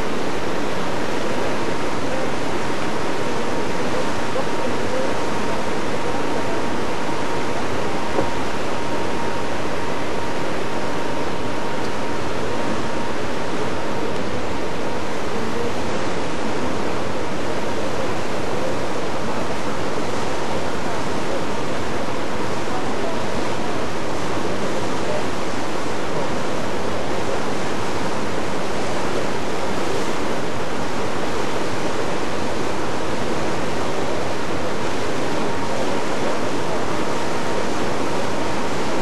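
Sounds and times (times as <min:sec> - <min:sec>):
wind and water rushing: 0:00.0 - 0:39.0.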